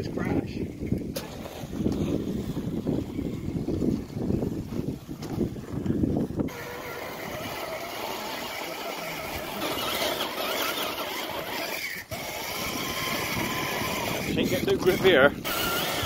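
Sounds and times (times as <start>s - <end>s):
electric motor and gears whining: 6.4s - 16.0s.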